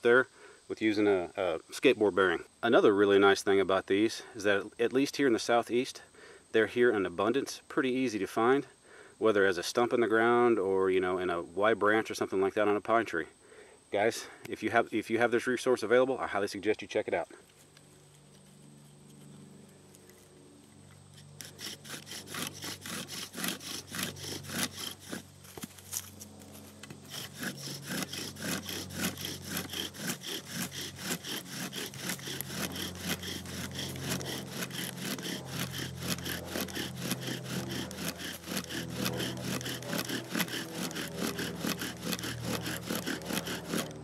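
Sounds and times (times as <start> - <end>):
bow drill sawing: 21.1 - 44.0
wooden spindle grinding: 21.1 - 44.0.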